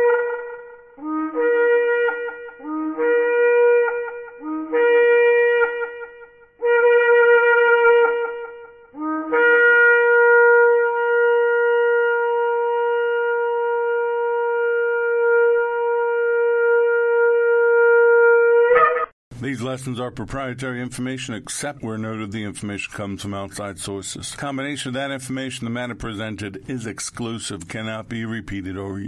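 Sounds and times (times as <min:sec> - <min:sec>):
shofar blasts: 0:00.0 - 0:19.1.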